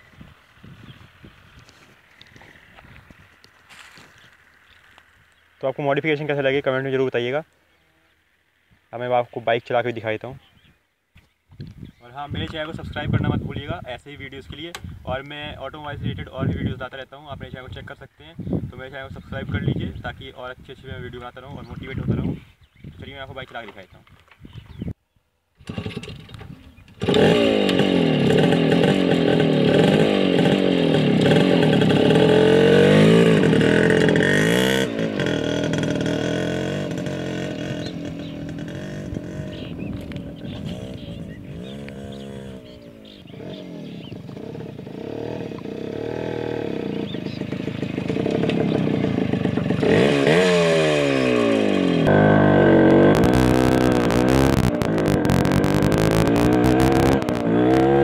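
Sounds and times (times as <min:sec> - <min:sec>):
wind buffeting microphone: 0:00.0 - 0:03.4, 0:11.5 - 0:14.0, 0:14.8 - 0:23.2, 0:24.4 - 0:25.0, 0:37.8 - 0:44.5
motorcycle revving: 0:25.6 - 0:58.0.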